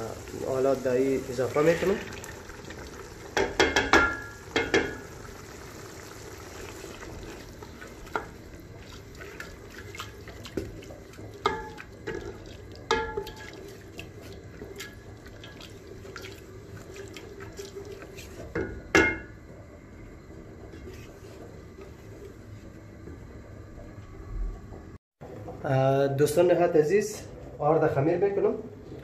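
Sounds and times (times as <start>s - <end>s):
spoon stirring wet sauce: 7.2s - 18.5s.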